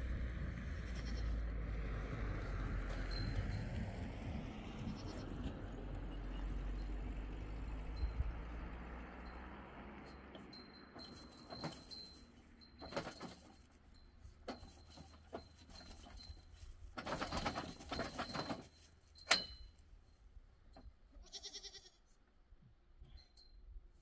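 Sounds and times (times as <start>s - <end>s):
goat bleating: 0.6s - 1.5s, 4.8s - 5.3s, 21.1s - 22.1s
ringing metal clank: 10.1s - 20.0s
metal tent frame clatter: 10.2s - 20.0s.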